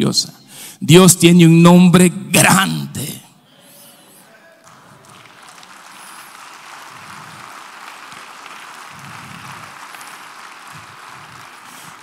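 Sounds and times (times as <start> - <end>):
faint applause: 4.3 - 12.0.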